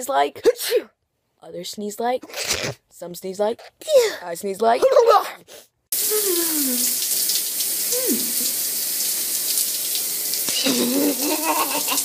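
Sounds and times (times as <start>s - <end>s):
shower spray hissing: 6.0s - 12.0s
woman's short vocal sounds: 10.5s - 11.2s.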